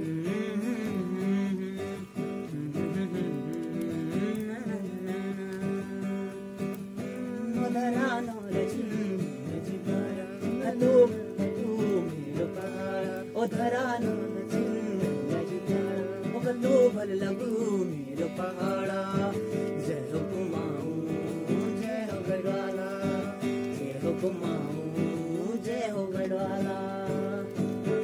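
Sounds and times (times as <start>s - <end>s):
acoustic guitar strumming: 0.0s - 28.0s
man singing: 0.0s - 28.0s.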